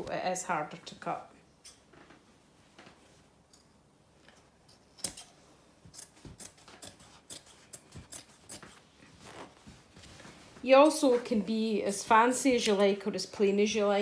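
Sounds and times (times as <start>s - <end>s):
scissors snipping thick fabric: 5.0s - 5.3s, 5.9s - 8.8s.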